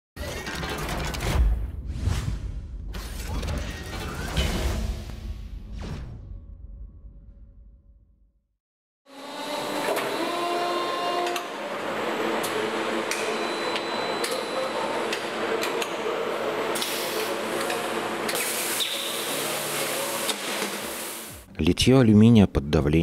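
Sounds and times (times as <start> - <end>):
hissing mist bursts: 18.4 - 21.4.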